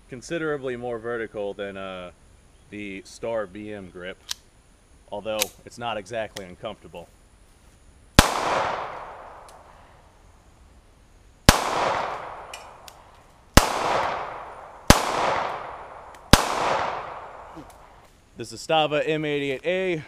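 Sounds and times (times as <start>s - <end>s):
pistol shots with echo: 8.2s - 9.5s, 11.5s - 12.8s, 13.6s - 17.6s.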